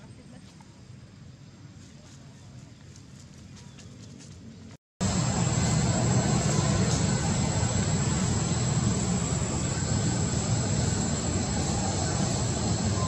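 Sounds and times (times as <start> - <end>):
hiss: 5.0 - 13.0
loud rumbling drone: 5.0 - 13.0.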